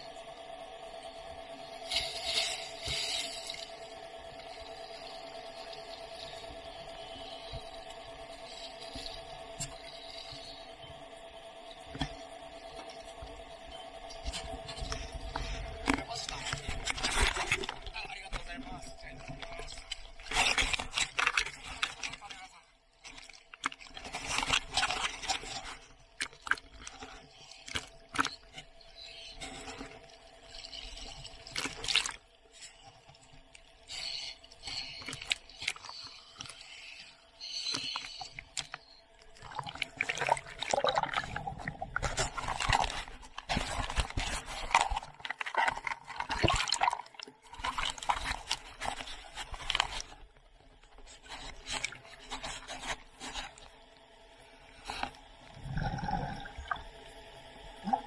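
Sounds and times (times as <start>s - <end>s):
sea water sloshing and splashing: 14.1s - 53.8s.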